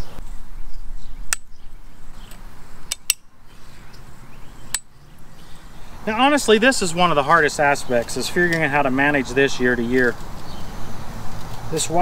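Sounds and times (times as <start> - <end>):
plastic insulators clicking: 2.3 - 3.2.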